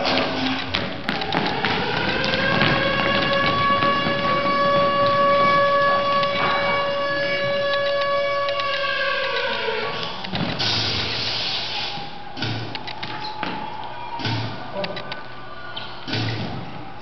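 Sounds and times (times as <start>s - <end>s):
hiss of noise: 10.6s - 12.0s.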